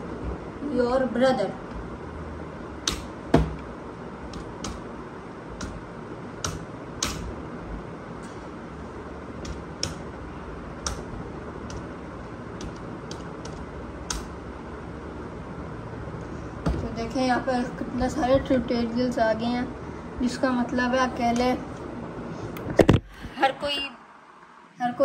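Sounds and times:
room noise: 0.0 - 25.0
computer keyboard key clicks: 12.6 - 14.3.

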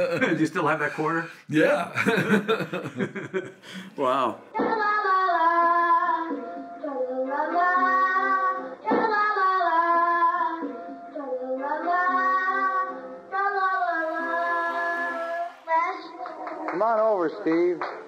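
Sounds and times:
boy singing: 4.6 - 16.6.

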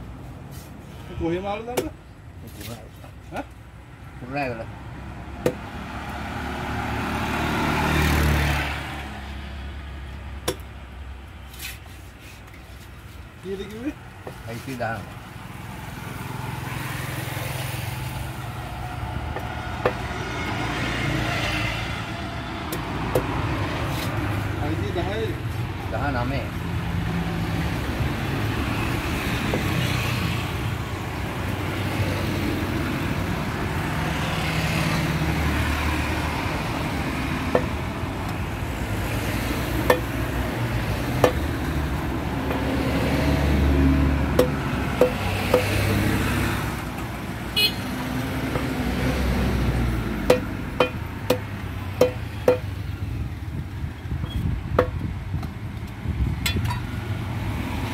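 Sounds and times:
road traffic rumble: 0.0 - 57.9
knife chopping on wooden block: 1.7 - 2.0, 5.4 - 5.6, 10.4 - 10.7, 44.3 - 46.0.

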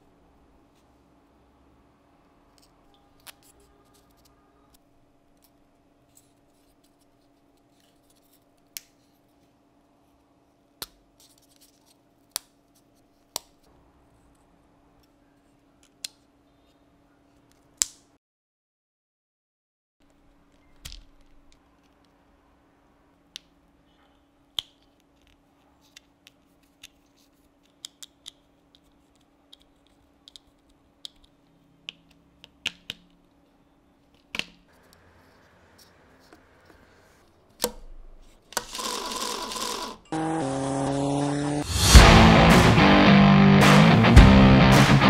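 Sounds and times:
loud noise: 40.2 - 45.0
music with electric guitar: 41.7 - 45.0.

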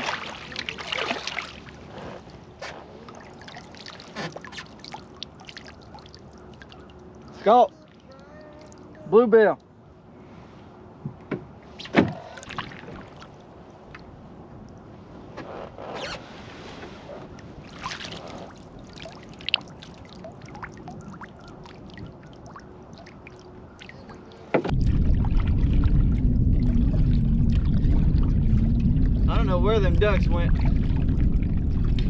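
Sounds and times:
paddle splashing in water: 0.0 - 8.0, 16.4 - 26.0
loud low rumble: 24.7 - 32.0.

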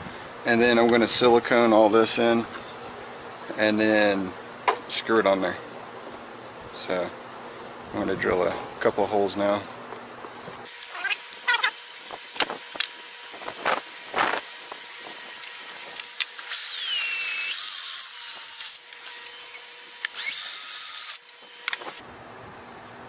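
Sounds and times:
cordless drill boring through plastic: 15.0 - 22.0.

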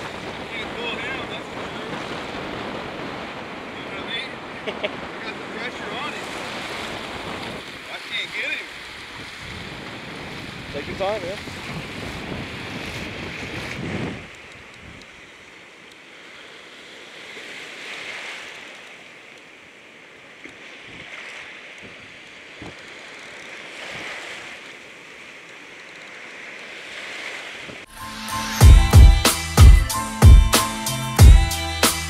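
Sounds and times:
wind on microphone: 0.0 - 7.9, 8.7 - 15.3, 20.8 - 21.2, 21.8 - 24.5
surf washing and foaming: 0.0 - 32.0.

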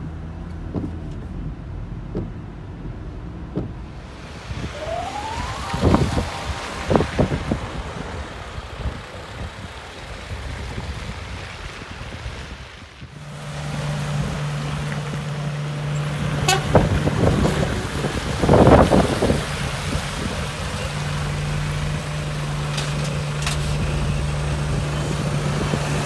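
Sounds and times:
heavy trucks on slushy road: 0.0 - 26.0
loud burst of sound: 4.0 - 10.2.

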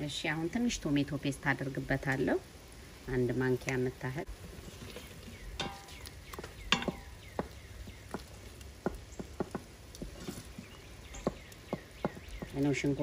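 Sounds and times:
soft sizzle: 0.0 - 13.0
wooden spoon knocking on pot: 5.6 - 12.8.

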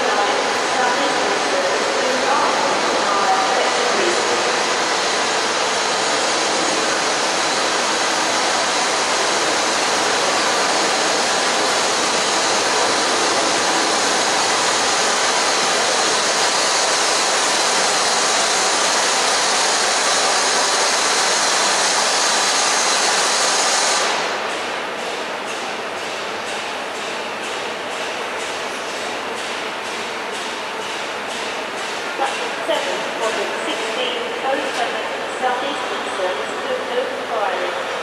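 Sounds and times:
steam locomotive roaring hiss: 0.0 - 24.4.

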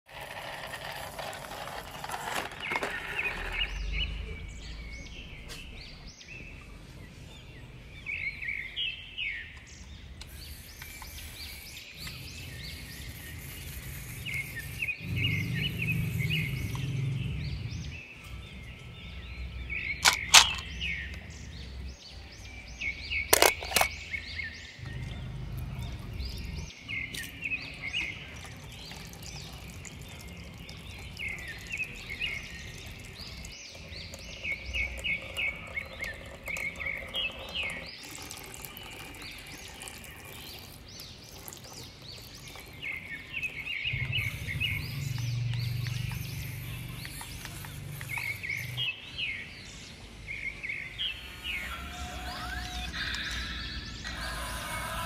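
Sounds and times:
small birds chirping: 0.2 - 55.0
low hum: 43.9 - 48.9.

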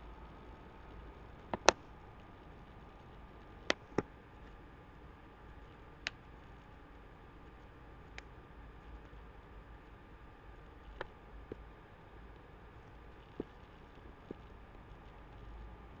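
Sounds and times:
faint steady hiss and hum: 0.0 - 16.0
computer mouse clicking: 1.5 - 1.8.

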